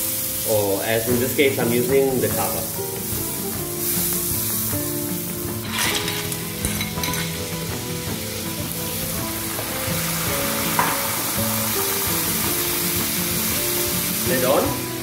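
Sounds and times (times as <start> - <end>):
sauce sizzling in a pan: 0.0 - 15.0
liquid pouring: 8.0 - 14.3.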